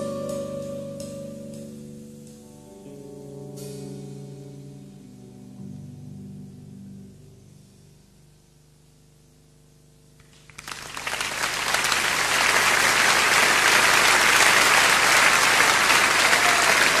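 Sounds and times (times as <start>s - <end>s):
audience applause: 10.3s - 17.0s.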